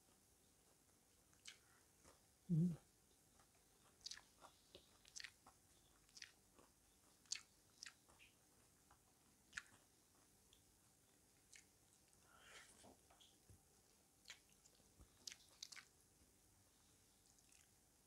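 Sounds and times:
chewing crispy chicken: 0:00.0 - 0:16.0, 0:16.8 - 0:17.8
mouth clicks: 0:02.5 - 0:02.8.

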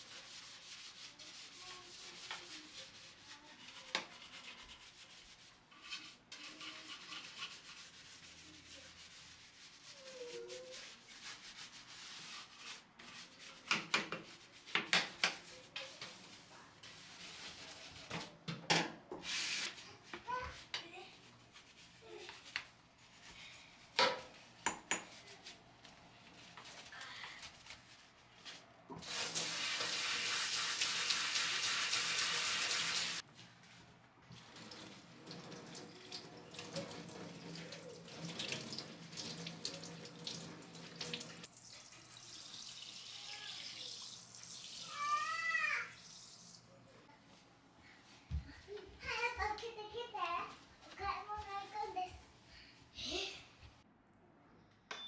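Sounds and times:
spray hose water flow: 0:19.2 - 0:19.8, 0:28.9 - 0:33.2
tap water running into steel sink: 0:28.9 - 0:33.2, 0:34.3 - 0:46.6.

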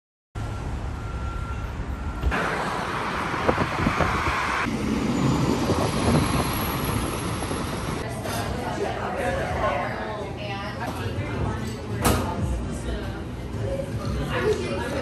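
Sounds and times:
vehicle rumbling: 0:00.4 - 0:08.1
loud rushing sound: 0:02.3 - 0:08.0.

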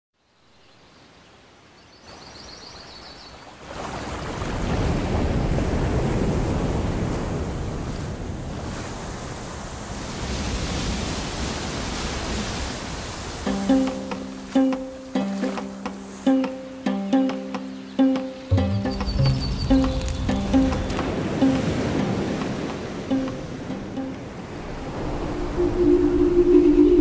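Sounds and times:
waterfall rushing: 0:13.2 - 0:27.0
high chirping trill: 0:13.6 - 0:21.8.

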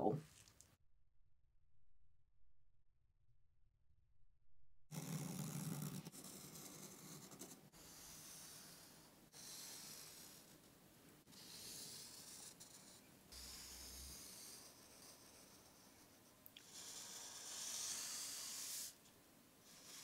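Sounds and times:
marker scratching along ruler: 0:05.0 - 0:19.0, 0:19.6 - 0:20.0.

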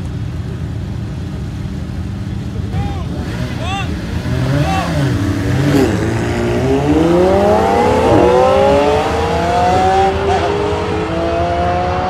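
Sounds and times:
sports car engine accelerating: 0:03.0 - 0:12.0.

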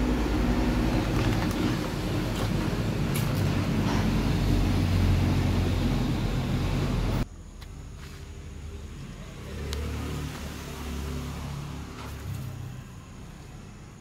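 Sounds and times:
low mechanical rumble: 0:00.0 - 0:09.3.

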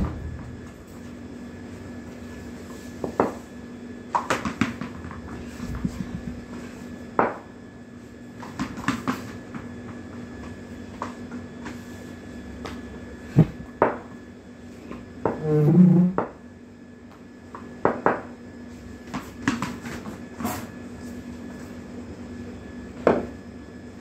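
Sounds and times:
low hum: 0:00.0 - 0:01.4.

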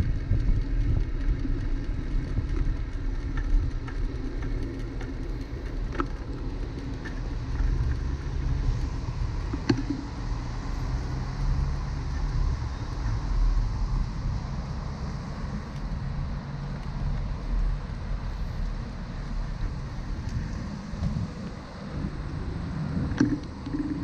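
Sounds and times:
wind and road noise: 0:00.0 - 0:24.0
car traffic passing: 0:04.9 - 0:24.0.

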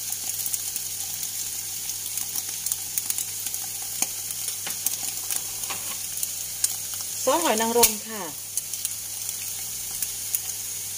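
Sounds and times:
food frying in a pan: 0:00.0 - 0:10.9
crackling pops: 0:04.0 - 0:10.5.

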